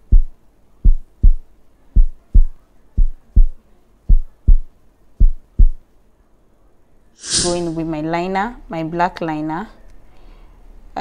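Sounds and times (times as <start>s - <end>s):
deep paired thumps beat: 0.0s - 5.8s.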